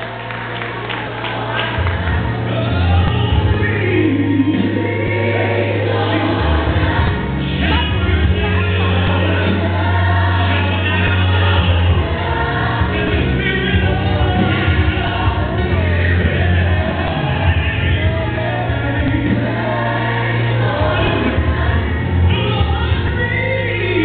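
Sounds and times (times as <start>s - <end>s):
gospel choir singing: 0.0s - 24.0s
heavy bass line: 0.0s - 24.0s.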